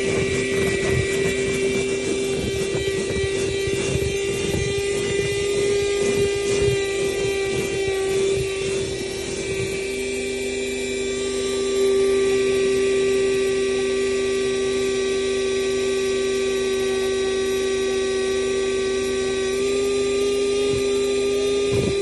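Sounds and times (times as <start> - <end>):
handheld vacuum motor whine: 0.0 - 22.0
lower tone: 0.0 - 22.0
nozzle sucking at carpet: 0.0 - 22.0.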